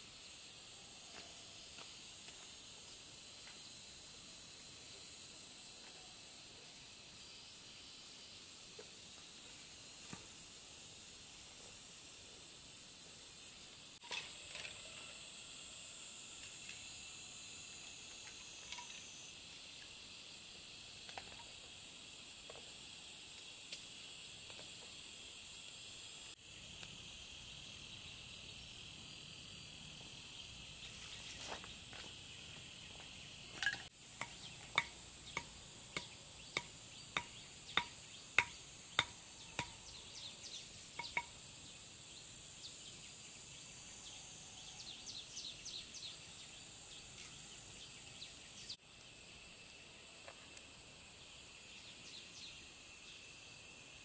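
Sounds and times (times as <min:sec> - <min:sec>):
insects chorus: 0:00.0 - 0:54.0.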